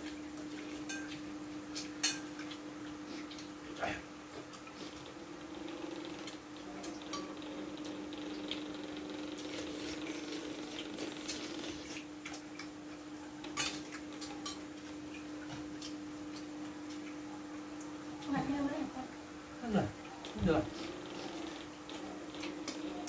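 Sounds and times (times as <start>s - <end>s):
spoons clinking against bowls: 0.8s - 1.2s.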